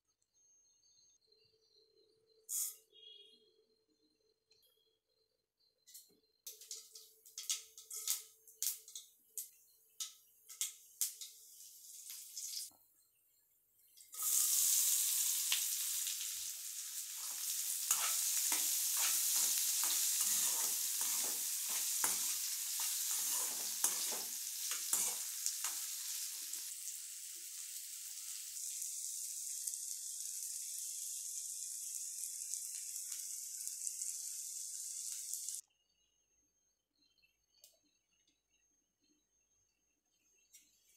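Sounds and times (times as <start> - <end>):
loud frying sizzle: 6.5 - 12.7, 14.1 - 35.6
seeds crackling in hot oil: 6.5 - 12.7, 14.0 - 35.6
spatula scraping pan: 17.2 - 25.8.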